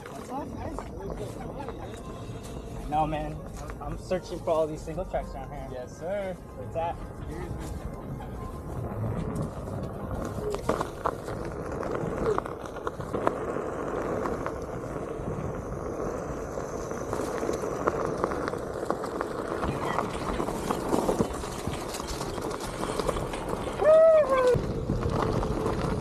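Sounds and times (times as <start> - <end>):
tyre rumbling on dirt trail: 6.7 - 26.0.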